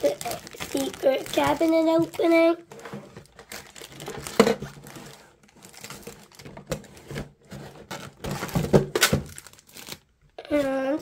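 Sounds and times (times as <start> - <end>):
plastic wrap crinkling: 0.0 - 11.0
cardboard boxes rustling and knocking: 2.7 - 9.5.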